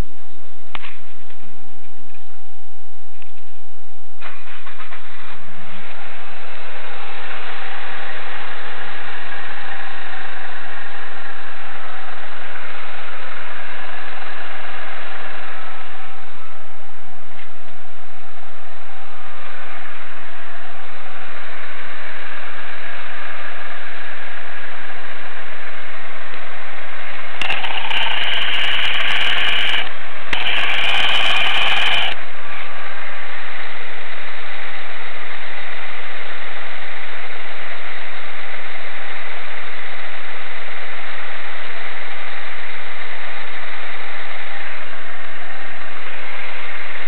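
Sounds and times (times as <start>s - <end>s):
harsh rattling from water pump: 27.4s - 32.2s.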